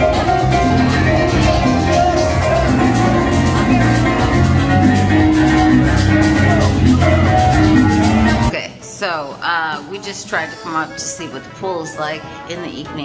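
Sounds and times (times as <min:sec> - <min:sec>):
live band playing upbeat music: 0:00.0 - 0:08.6.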